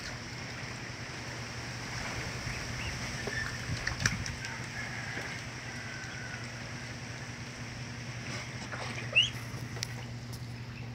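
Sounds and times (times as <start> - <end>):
steady low hum: 0.0 - 10.9
ducklings peeping: 2.4 - 4.8, 5.7 - 7.0, 8.5 - 10.9.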